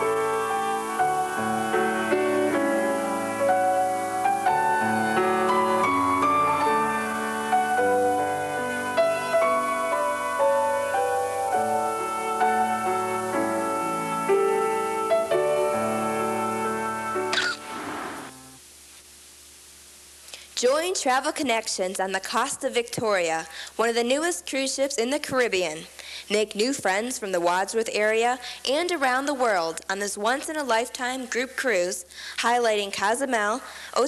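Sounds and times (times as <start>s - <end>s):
slow gentle piano music: 0.0s - 18.6s.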